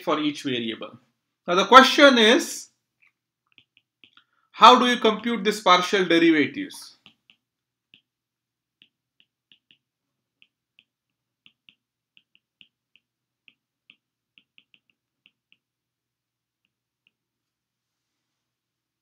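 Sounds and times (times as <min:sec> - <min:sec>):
stylus tapping on glass screen: 0:06.9 - 0:15.8.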